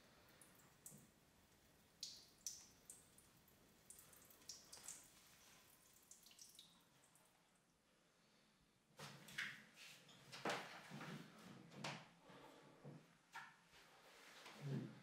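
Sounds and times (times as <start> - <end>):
faint water drips: 0.0 - 7.9.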